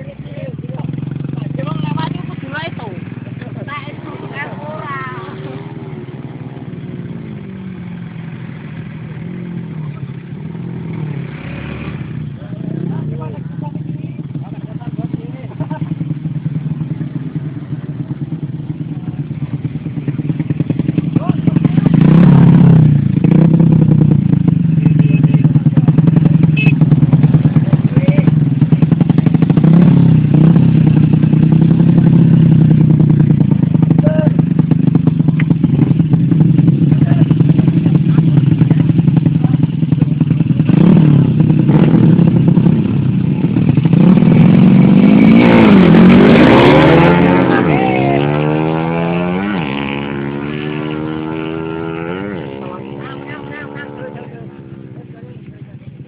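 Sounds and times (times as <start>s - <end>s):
voices: 0.0s - 11.2s, 12.2s - 22.3s, 24.6s - 29.0s, 33.2s - 40.4s, 45.3s - 56.0s
wind and road noise: 0.0s - 15.0s
small motorcycle engines running: 0.0s - 56.0s.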